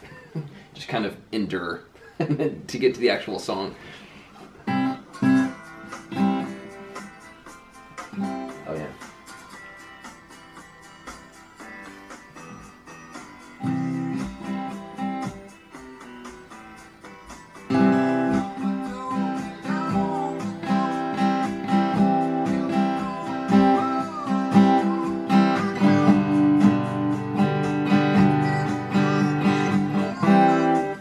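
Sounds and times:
acoustic guitar strumming: 3.8 - 31.0
rock song with singing: 16.6 - 31.0.

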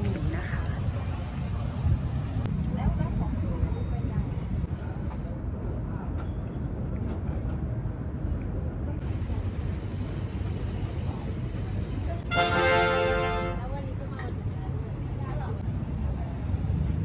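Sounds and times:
horn-like ta-da sound effect: 12.3 - 13.7.

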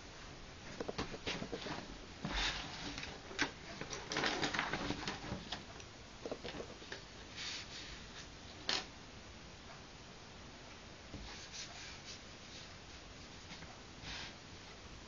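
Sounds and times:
paintbrush stroking paper: 6.3 - 8.3.

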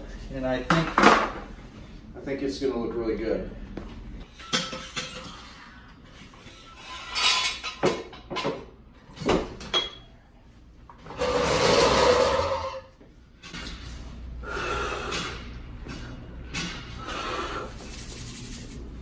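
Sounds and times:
floor jack scraping on concrete: 11.1 - 12.8.

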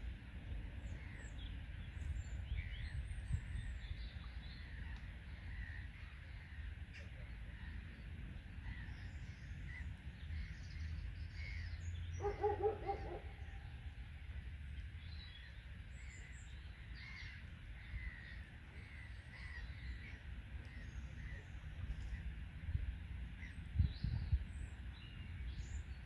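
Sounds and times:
small birds chirping: 14.6 - 26.0.

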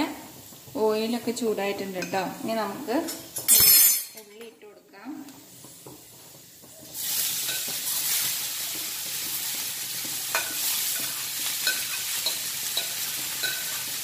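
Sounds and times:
onions sizzling in hot oil: 0.0 - 14.0
metal spoon clinking: 3.1 - 4.3, 10.3 - 13.8.

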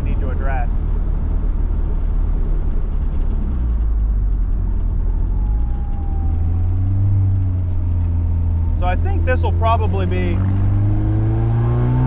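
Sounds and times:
car engine droning: 0.0 - 12.0.

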